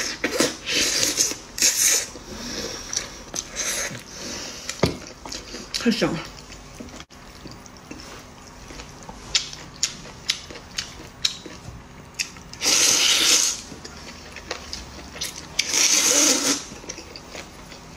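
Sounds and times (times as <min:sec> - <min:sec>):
loud noodle slurps: 0:00.0 - 0:04.6, 0:12.6 - 0:13.7, 0:15.6 - 0:16.7.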